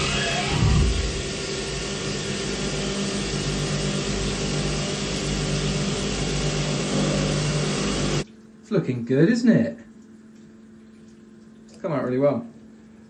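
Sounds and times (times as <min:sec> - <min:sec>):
milling machine cutting metal: 0:00.0 - 0:08.2.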